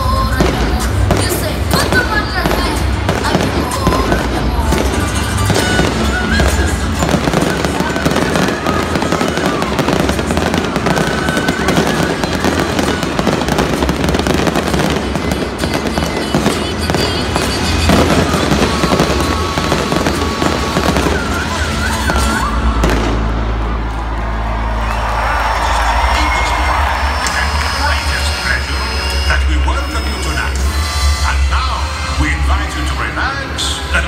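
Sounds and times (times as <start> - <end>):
fireworks bursting and crackling: 0.0 - 31.2
orchestral theme music: 0.0 - 34.0.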